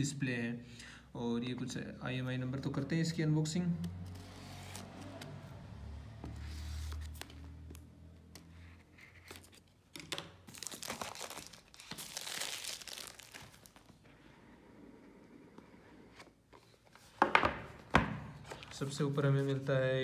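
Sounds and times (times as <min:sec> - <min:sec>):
plastic film crinkling and tearing: 0:10.4 - 0:13.9.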